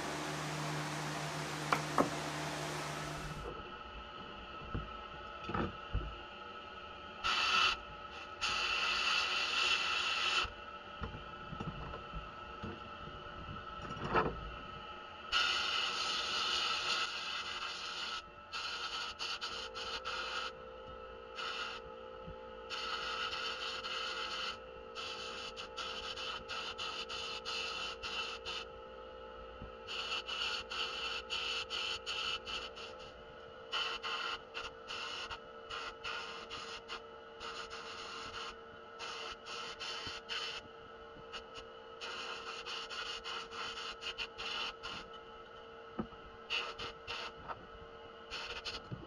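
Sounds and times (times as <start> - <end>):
steady hum: 0.0 - 8.9.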